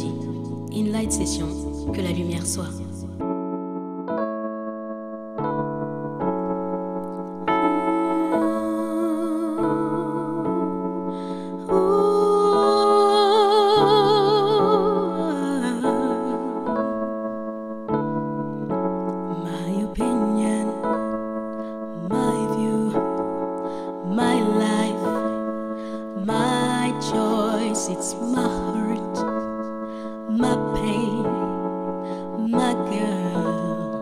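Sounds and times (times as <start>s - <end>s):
electric piano chords: 0.0s - 34.0s
woman singing with vibrato: 7.5s - 16.7s, 19.4s - 21.1s, 21.9s - 23.1s, 23.8s - 29.4s, 30.1s - 34.0s.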